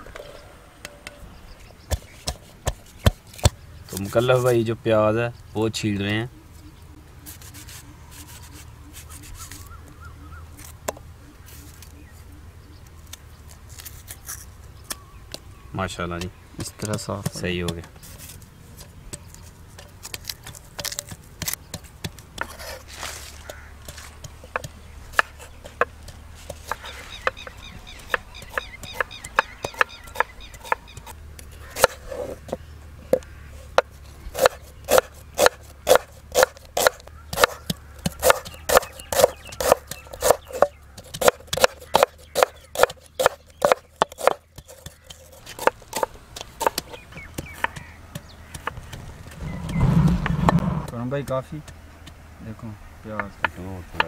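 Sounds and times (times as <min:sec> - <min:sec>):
pestle pounding in clay bowl: 0:33.8 - 0:51.8.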